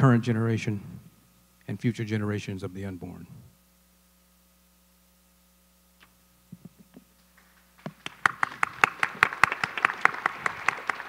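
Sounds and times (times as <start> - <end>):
audience clapping: 7.2 - 11.0
sharp close claps: 7.2 - 11.0.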